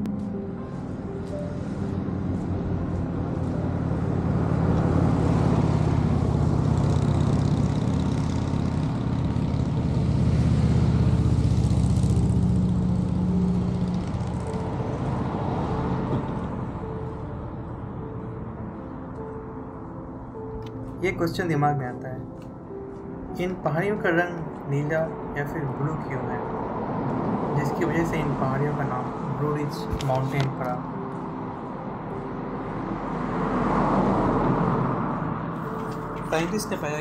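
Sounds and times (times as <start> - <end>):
car engine: 0.0 - 20.9
tyres on road: 0.0 - 37.0.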